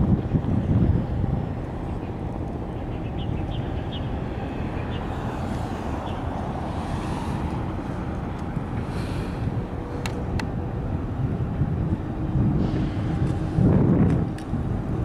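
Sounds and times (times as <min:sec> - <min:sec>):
distant engine noise: 0:00.0 - 0:15.0
wind on microphone: 0:00.0 - 0:15.0.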